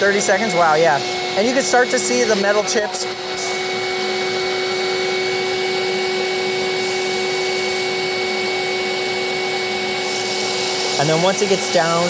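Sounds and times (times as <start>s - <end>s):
constant machine whine: 0.0s - 12.0s
vacuum suction rushing: 0.0s - 12.0s.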